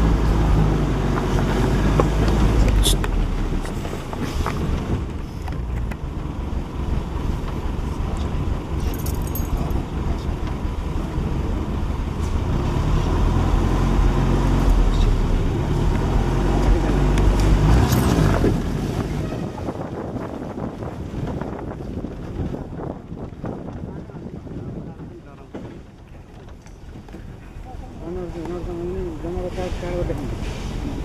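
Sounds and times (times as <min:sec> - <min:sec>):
jeep engine running: 0:00.0 - 0:31.0.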